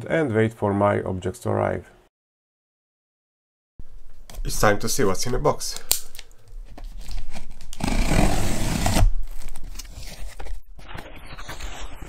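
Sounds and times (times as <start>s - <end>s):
packing tape tearing: 5.8s - 10.6s.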